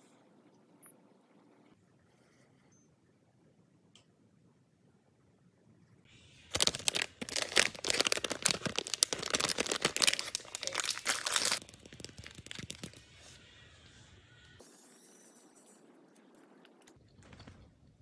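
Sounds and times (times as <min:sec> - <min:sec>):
plastic wrapper crinkling: 0:06.5 - 0:13.0.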